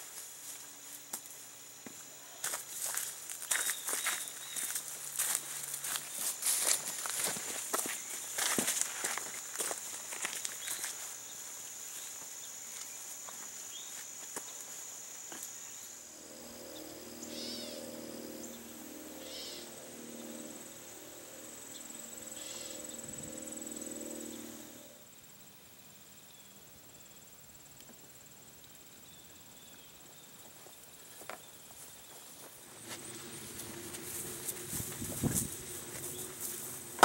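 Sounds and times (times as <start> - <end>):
crickets trilling: 0.0 - 37.0
low wavering hum: 16.0 - 25.1, 32.7 - 37.0.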